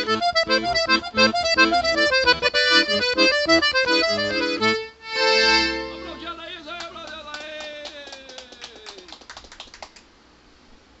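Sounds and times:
piano accordion chord: 0.0s - 6.4s
hand clapping: 6.7s - 10.1s.

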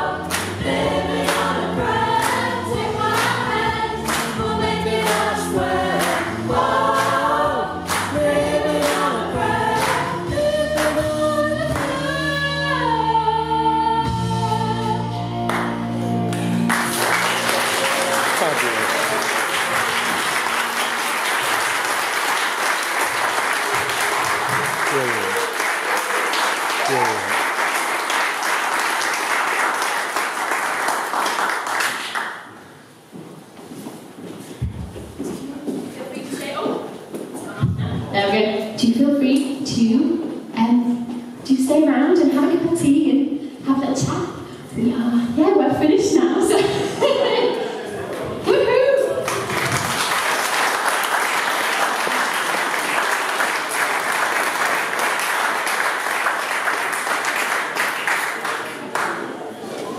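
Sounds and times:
audience applauding: 15.5s - 32.6s, 49.1s - 59.5s.

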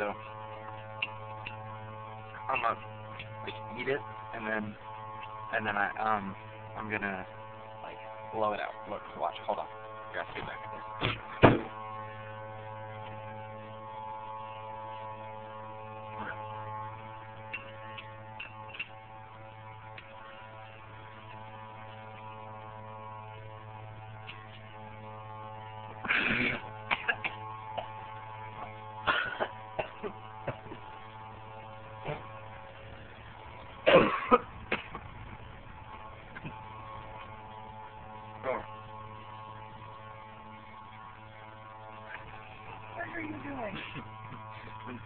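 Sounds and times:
steady hum: 0.0s - 45.0s
child coughing and blowing: 26.0s - 28.0s, 29.0s - 30.2s, 33.8s - 35.0s.

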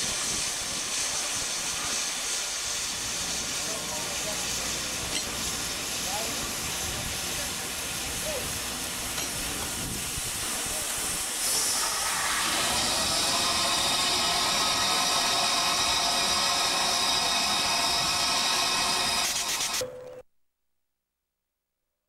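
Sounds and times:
steam locomotive hissing steam: 0.0s - 19.8s.

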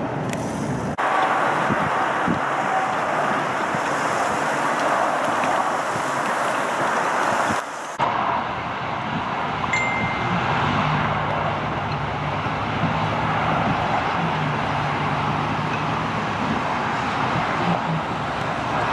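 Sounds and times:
vehicle engine hum: 0.0s - 18.9s
freezing rain hiss: 0.3s - 8.0s
brief high ding: 9.7s - 10.7s.

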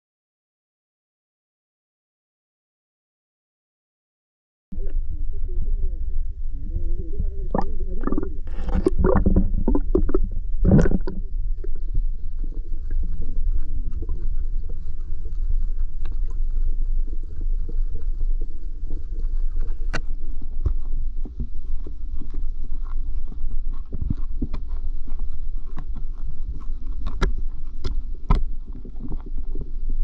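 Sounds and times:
muffled underwater rumble: 4.8s - 30.0s.

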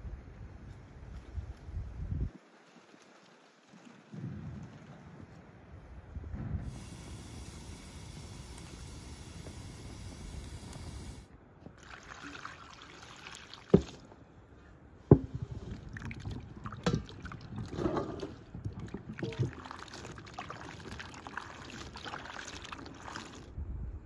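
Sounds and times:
water sloshing and splashing: 11.7s - 14.3s, 15.1s - 23.6s.

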